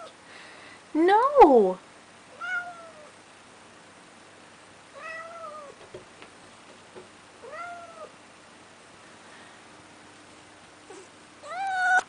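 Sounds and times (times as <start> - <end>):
cat meowing: 2.4 - 3.1, 5.0 - 5.8, 7.4 - 8.1, 10.9 - 12.0.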